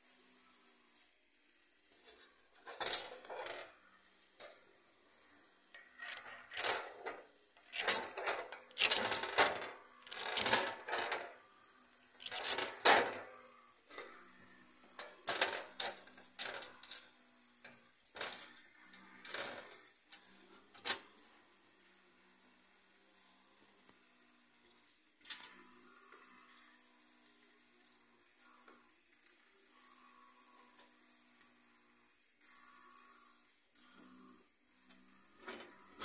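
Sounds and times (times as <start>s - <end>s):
hard object scraping on stone: 5.8s - 11.4s, 12.2s - 12.9s.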